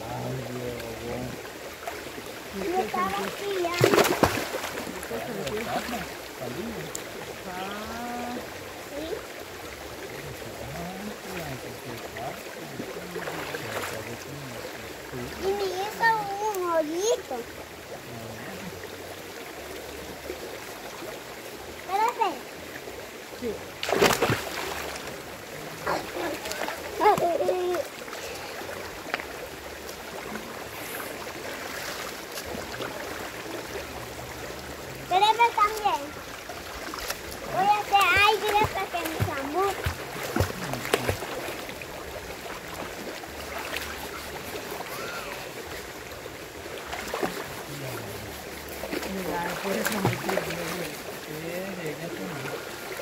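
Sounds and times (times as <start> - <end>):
quiet voices talking: 0.0 - 1.4, 2.4 - 19.1, 25.0 - 29.0, 36.8 - 45.8, 47.0 - 53.0
river water flowing over rocks: 0.0 - 53.0
small splashes: 0.1 - 18.0, 18.6 - 53.0.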